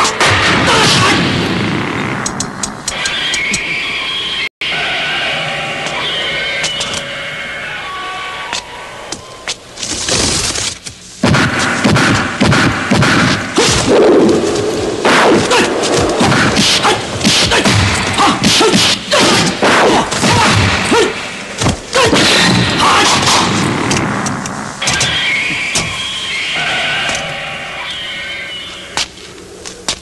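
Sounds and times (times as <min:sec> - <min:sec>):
punch and kick impacts: 0:11.2 - 0:14.1, 0:15.0 - 0:24.1.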